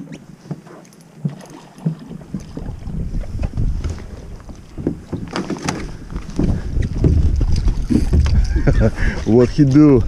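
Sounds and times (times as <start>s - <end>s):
boat motor low rumble: 0.0s - 10.0s
sharp knocks or splashes: 4.8s - 8.8s.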